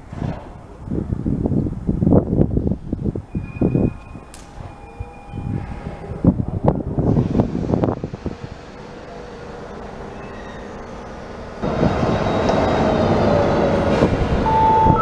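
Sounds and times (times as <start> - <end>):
railway coaches rumbling: 0.0 - 15.0
electric locomotive drone and whine: 2.1 - 15.0.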